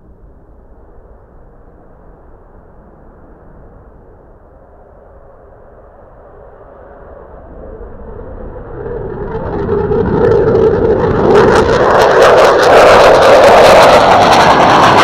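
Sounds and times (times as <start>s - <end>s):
jet fighter afterburner roar: 8.1s - 15.0s
harsh jet crackling: 9.6s - 15.0s.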